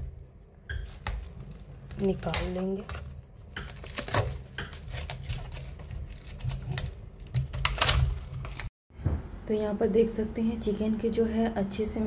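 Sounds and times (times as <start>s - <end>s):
clingfilm crinkling: 0.8s - 8.7s.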